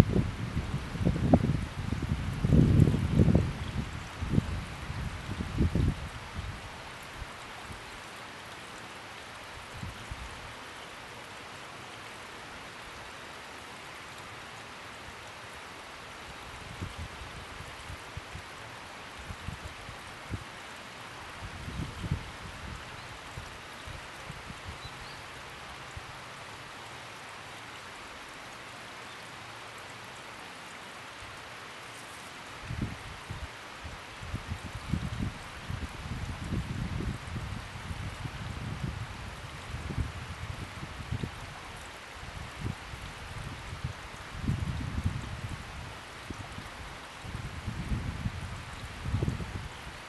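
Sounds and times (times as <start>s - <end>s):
light rain falling: 0.0s - 50.0s.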